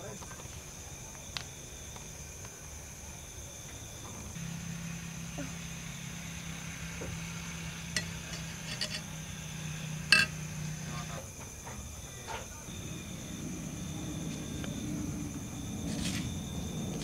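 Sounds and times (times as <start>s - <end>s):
low steady hum: 4.4s - 11.1s
glass and ceramic dishes clinking: 10.1s - 10.4s.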